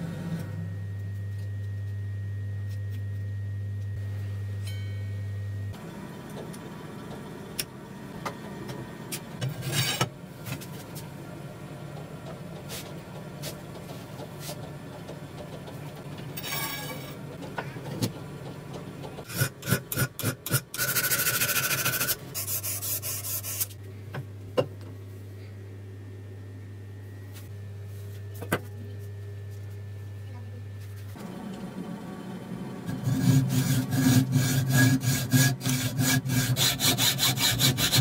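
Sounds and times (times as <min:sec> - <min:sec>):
loud rasping on metal: 0:19.3 - 0:23.7, 0:32.9 - 0:38.0.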